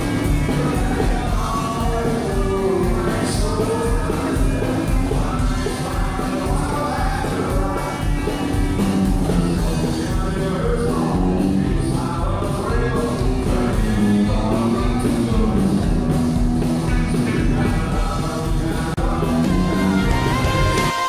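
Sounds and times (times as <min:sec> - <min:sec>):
country song with singer: 0:00.0 - 0:21.0.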